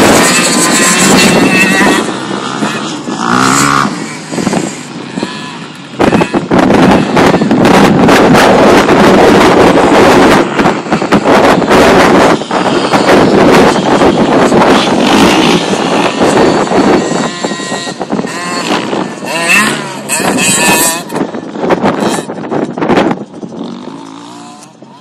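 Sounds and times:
dirt bike engines revving: 0:00.0 - 0:25.0.

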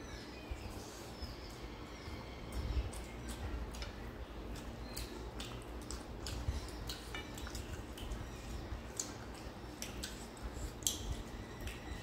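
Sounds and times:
chewing: 0:02.5 - 0:12.0.

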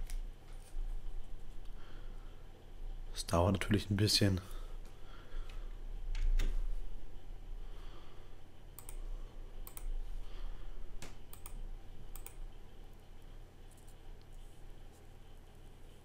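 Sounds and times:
low steady hum: 0:00.0 - 0:16.0
computer mouse clicks: 0:08.8 - 0:10.0, 0:11.0 - 0:12.5.

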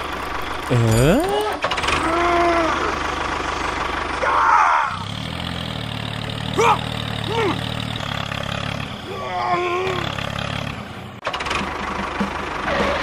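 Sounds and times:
tractor engine idling: 0:00.0 - 0:13.0
short squeaky voice-like sounds: 0:00.7 - 0:01.5.

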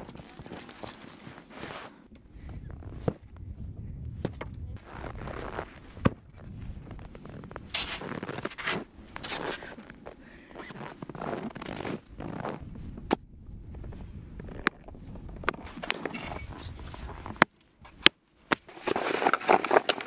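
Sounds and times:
snow scraping off tent cover: 0:01.0 - 0:02.0.

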